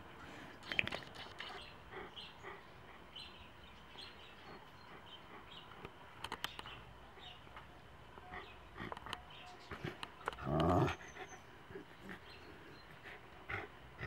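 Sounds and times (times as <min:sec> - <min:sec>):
faint birds chirping: 0:00.0 - 0:14.0
sharp clicks: 0:05.8 - 0:06.8, 0:09.9 - 0:10.8.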